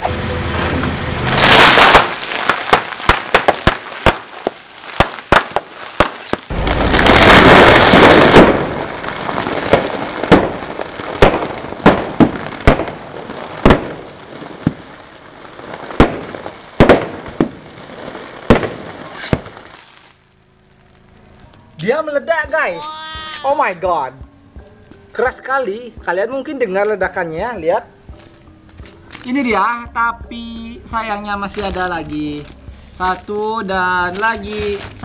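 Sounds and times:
loud noisy rush: 0.0s - 2.6s
plastic packs bursting: 1.2s - 8.8s, 29.0s - 29.8s, 30.9s - 35.0s.

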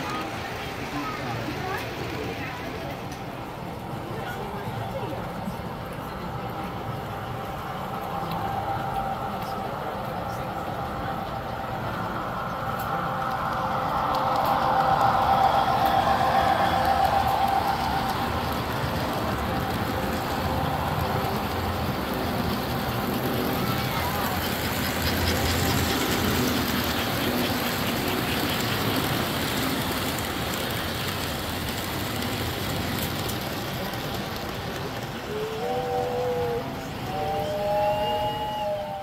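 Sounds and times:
model train wheels rumbling: 0.0s - 39.0s
people chattering: 0.0s - 39.0s
model train whistle: 35.3s - 39.0s.

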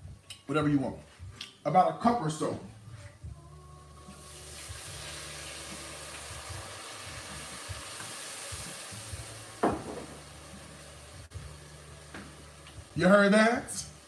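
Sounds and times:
wine sizzling in hot pot: 3.9s - 14.0s.

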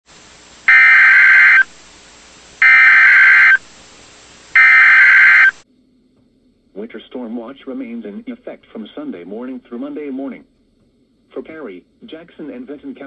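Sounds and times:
faint steady hiss: 0.1s - 13.0s
shrill digital data bursts: 0.7s - 1.7s, 2.6s - 3.6s, 4.6s - 5.6s.

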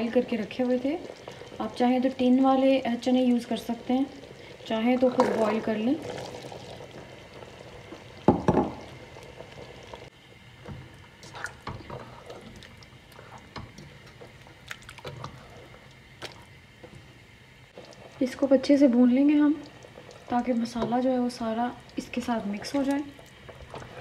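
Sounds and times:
curry bubbling: 0.0s - 24.0s.

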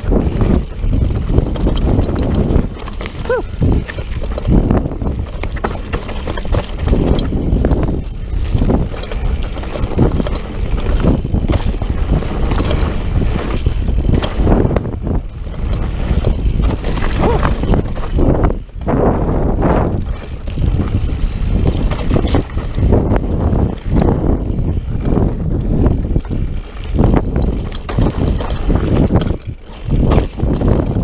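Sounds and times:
bike rattling and clunking: 0.0s - 31.0s
wind buffeting microphone: 0.0s - 31.0s
tyres rolling over dirt and stones: 0.1s - 18.8s, 25.8s - 31.0s.

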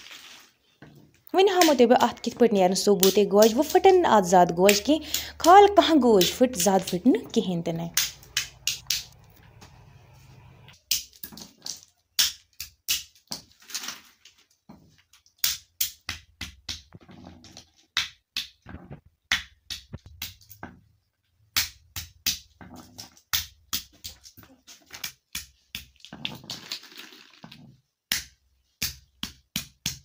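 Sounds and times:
hammer cracking walnuts: 1.4s - 4.0s, 4.6s - 7.3s, 7.9s - 9.2s, 10.8s - 13.5s, 15.1s - 18.7s, 21.5s - 26.6s.

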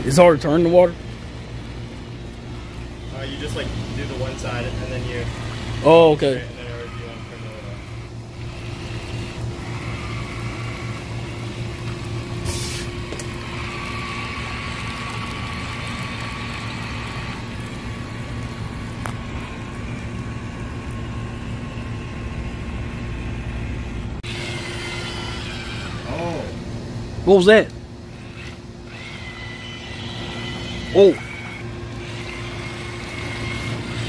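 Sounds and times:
constant low hum: 0.0s - 34.0s
electric motors whining: 0.0s - 34.0s
wheels churning through water: 0.0s - 34.0s
short hiss: 12.4s - 12.9s.

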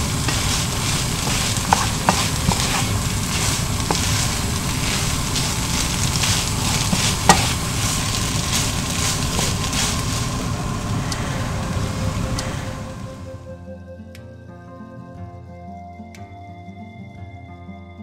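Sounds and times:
vegetables sizzling in a frying pan: 0.0s - 13.4s.

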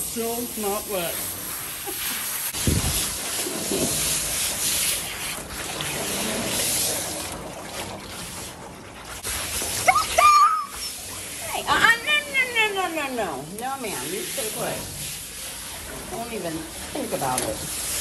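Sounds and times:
hose spray hissing: 0.0s - 5.4s, 9.5s - 15.6s.

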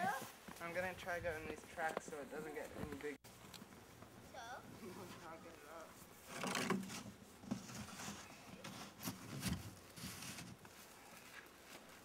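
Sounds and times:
wheelbarrow knocks and scrapes: 6.2s - 10.6s.

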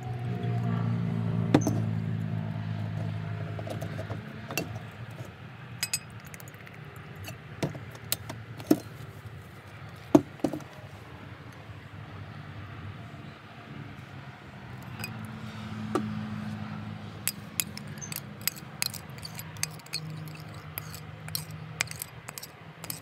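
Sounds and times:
glass and spoon clinking: 5.8s - 7.4s, 14.9s - 15.2s, 17.3s - 23.0s.

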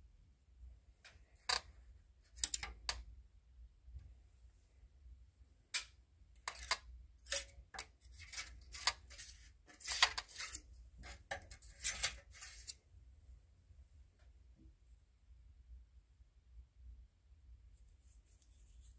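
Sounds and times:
metal scraper scraping metal: 6.4s - 12.8s.

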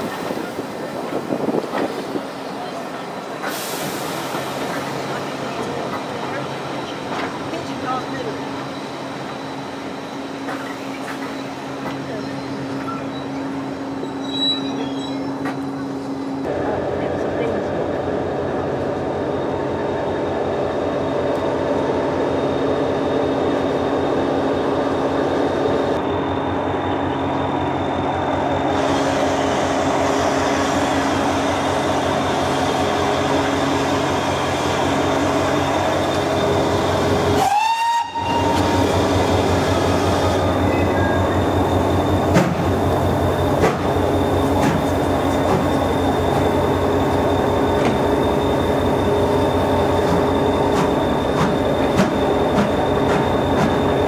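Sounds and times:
train engine idling: 0.0s - 54.0s
train whistle: 37.3s - 39.0s.

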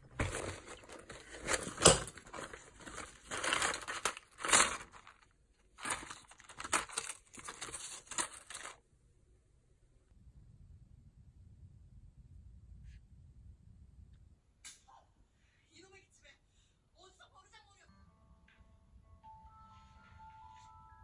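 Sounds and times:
plastic and foil packaging crinkling: 0.0s - 8.8s.

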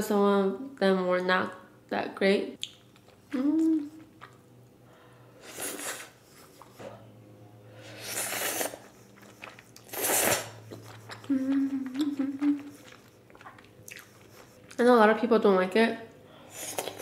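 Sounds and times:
low steady hum: 0.0s - 17.0s
soft chewing: 2.6s - 4.5s, 8.1s - 10.0s, 10.6s - 14.8s
slurping noodles: 7.8s - 13.2s.

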